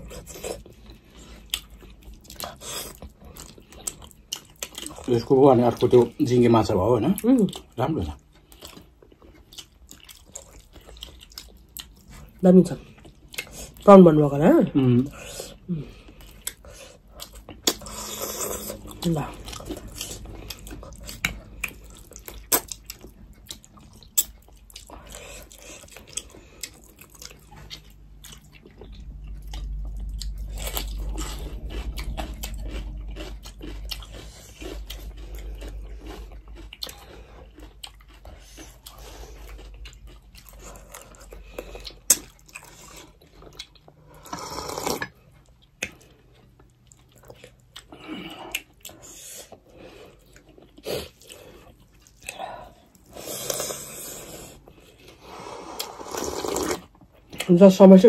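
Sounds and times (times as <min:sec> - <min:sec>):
people chewing: 0:00.0 - 0:57.6
low rumble: 0:27.7 - 0:37.4.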